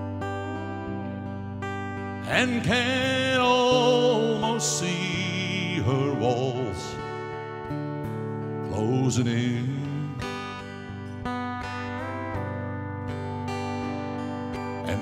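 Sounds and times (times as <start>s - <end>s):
man singing: 0.2s - 1.2s, 2.1s - 7.3s, 8.6s - 10.8s.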